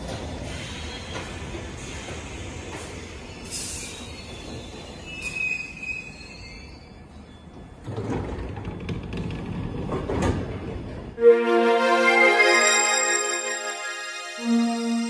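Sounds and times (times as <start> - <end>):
train brakes squealing: 0.4 - 7.8
train drawing to a stop: 11.2 - 15.0.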